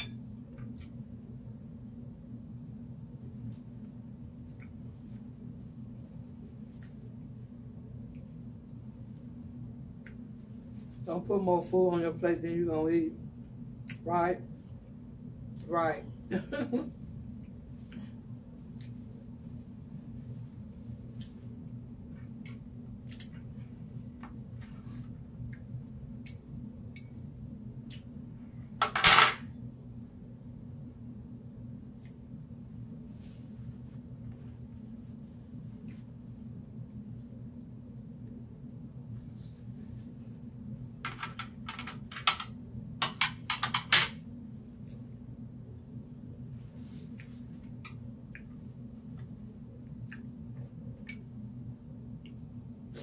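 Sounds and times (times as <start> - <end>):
steady low hum: 0.0 - 53.0
eating mouth smacks and clicks: 50.0 - 50.3.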